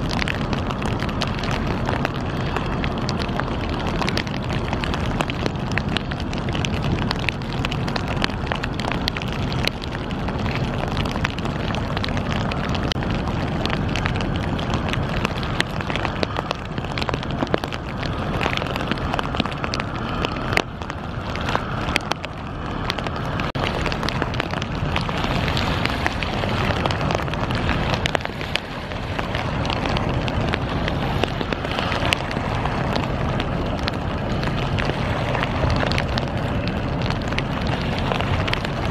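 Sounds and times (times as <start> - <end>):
wind buffeting microphone: 0.0 - 38.9.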